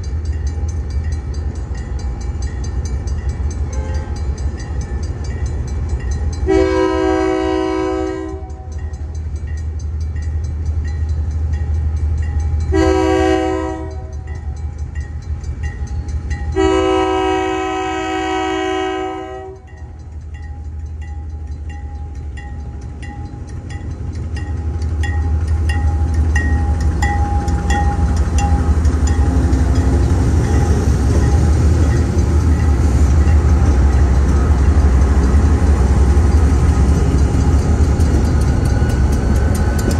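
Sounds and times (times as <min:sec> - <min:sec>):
crossing bell dinging: 0:00.0 - 0:39.9
locomotive air horn blasts: 0:03.7 - 0:04.2, 0:06.4 - 0:08.8, 0:12.7 - 0:14.2, 0:16.6 - 0:19.7
diesel engines droning: 0:19.9 - 0:39.9.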